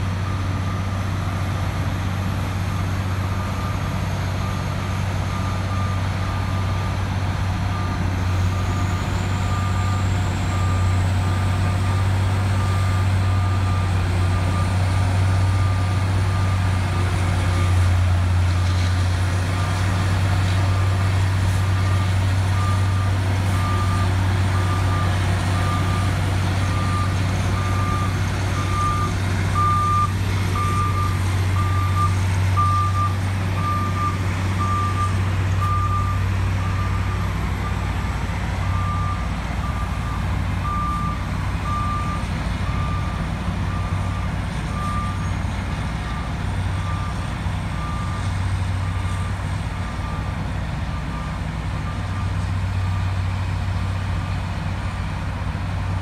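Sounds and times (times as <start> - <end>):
heavy diesel machinery running: 0.0 - 56.0
back-up alarm beeping: 24.6 - 37.8.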